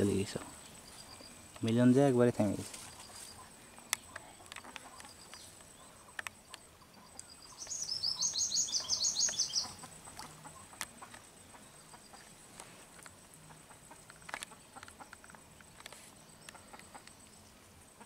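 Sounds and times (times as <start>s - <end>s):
small bird trilling: 7.3s - 9.9s.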